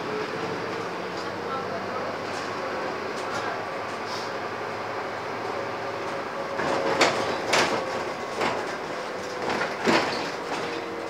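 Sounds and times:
bus engine drone: 0.0s - 11.0s.

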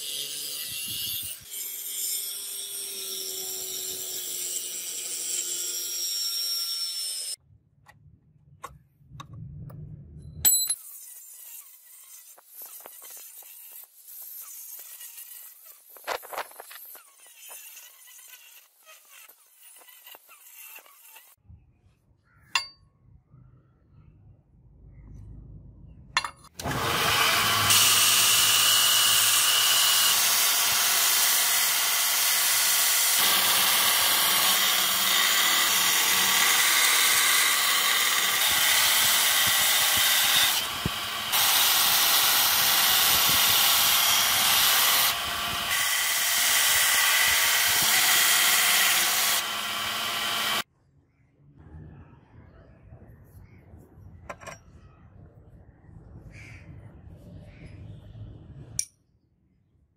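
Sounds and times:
belt grinder grinding steel: 0.0s - 7.4s, 10.8s - 21.4s, 26.6s - 50.7s.

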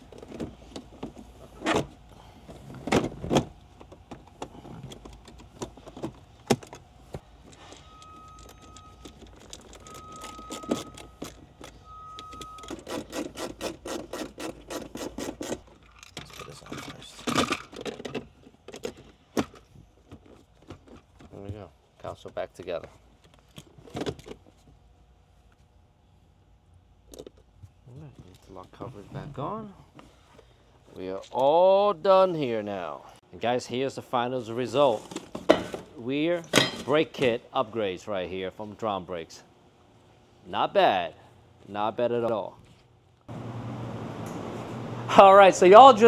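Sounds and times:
short steady beeps: 7.7s - 9.2s, 9.8s - 12.8s.

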